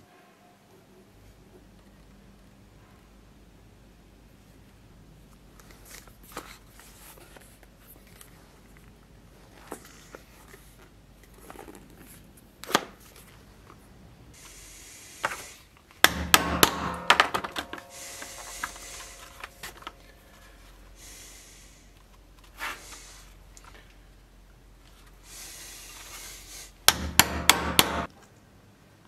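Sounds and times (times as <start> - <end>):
leather and tools rustling: 5.6 - 13.5
hammer striking steel chisel: 16.0 - 20.4, 26.9 - 28.1
metallic ring: 16.3 - 21.0.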